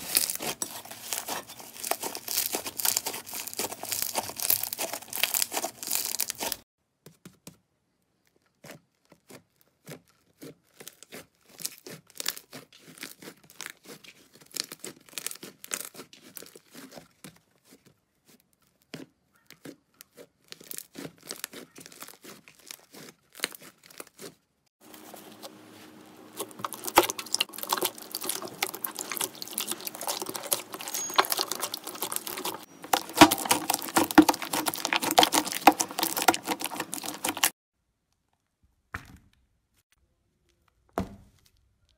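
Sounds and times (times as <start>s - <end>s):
slime crackling and popping: 0.0s - 6.6s, 9.8s - 16.9s, 26.3s - 37.6s.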